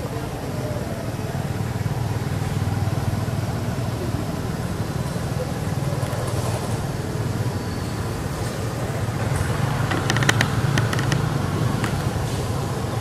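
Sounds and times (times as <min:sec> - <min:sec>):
vehicle engine rumbling: 0:00.0 - 0:13.0
sharp clicks: 0:09.4 - 0:12.1.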